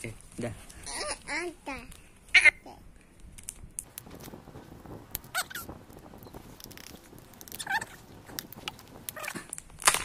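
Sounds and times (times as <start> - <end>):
high voice-like squeaks: 5.3 - 5.7, 7.6 - 8.0.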